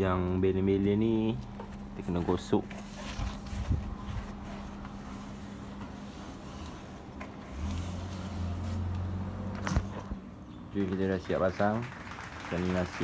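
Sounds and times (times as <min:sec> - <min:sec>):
vehicle engine humming: 0:00.0 - 0:13.0.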